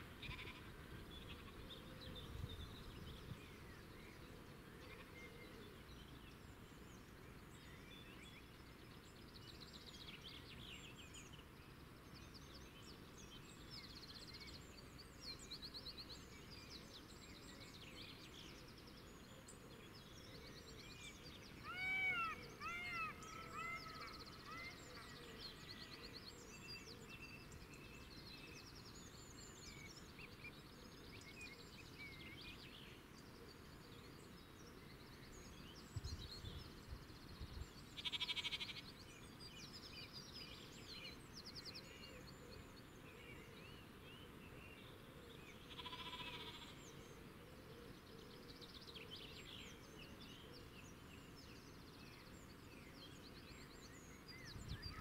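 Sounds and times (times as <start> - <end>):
small birds chirping: 0.2 - 55.0
buzzy bird calls: 38.0 - 38.8, 45.7 - 46.8.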